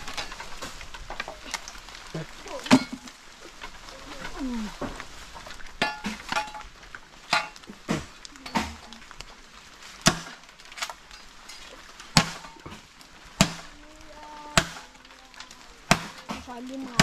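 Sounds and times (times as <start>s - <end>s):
machete chopping bamboo: 10.0s - 10.4s, 12.1s - 12.8s, 13.4s - 13.8s, 14.6s - 15.0s, 15.9s - 17.0s.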